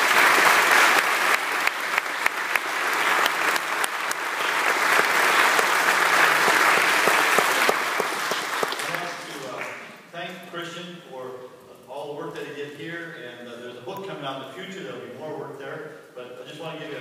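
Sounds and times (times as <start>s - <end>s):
crowd applauding: 0.0s - 10.0s.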